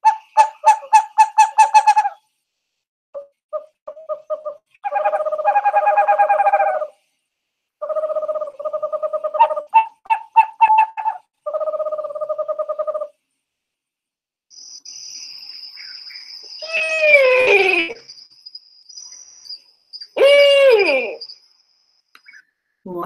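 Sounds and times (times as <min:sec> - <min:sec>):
owl hooting: 0:00.0 - 0:02.2, 0:03.6 - 0:07.0, 0:07.8 - 0:13.2, 0:15.8 - 0:18.1, 0:20.0 - 0:21.4.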